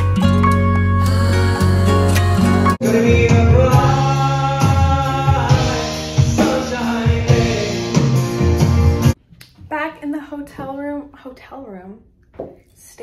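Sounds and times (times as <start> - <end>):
man singing: 1.1 - 8.4.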